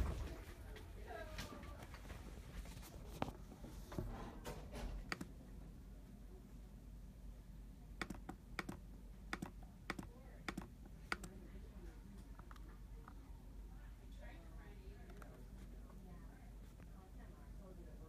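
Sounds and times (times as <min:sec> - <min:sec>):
laptop keys clicking: 0:05.1 - 0:05.3, 0:08.0 - 0:11.4.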